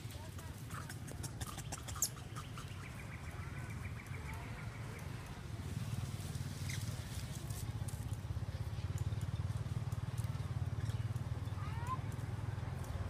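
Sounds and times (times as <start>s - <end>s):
small animal chirping: 0.4s - 5.2s.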